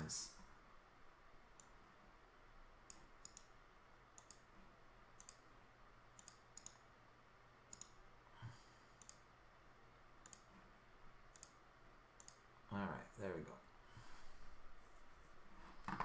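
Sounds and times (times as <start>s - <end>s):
low steady hum: 0.0s - 16.0s
computer mouse clicks: 1.6s - 1.8s, 2.9s - 3.6s, 4.2s - 4.5s, 5.2s - 5.5s, 6.2s - 6.9s, 7.7s - 8.0s, 9.0s - 9.3s, 10.2s - 10.6s, 11.3s - 11.6s, 12.2s - 12.4s.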